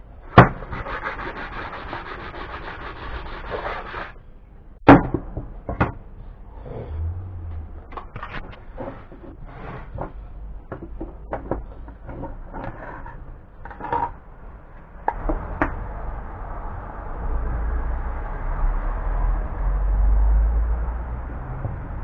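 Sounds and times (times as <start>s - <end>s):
low rumble: 5.5s - 9.0s, 14.2s - 22.0s.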